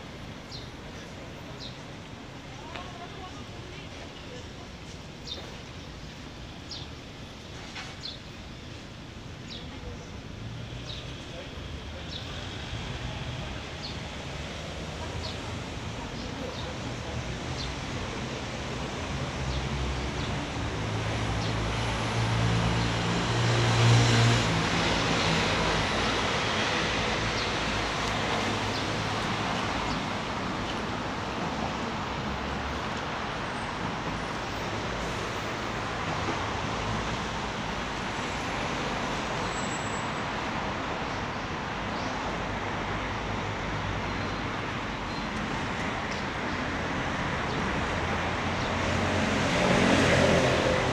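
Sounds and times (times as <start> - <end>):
hum of passing cars: 10.4 - 50.9.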